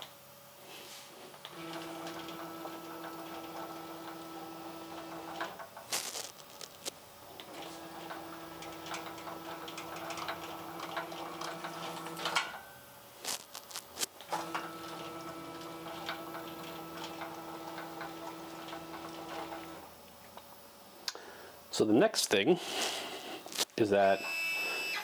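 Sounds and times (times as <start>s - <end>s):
stepper motor hum: 1.4s - 5.6s, 7.4s - 12.4s.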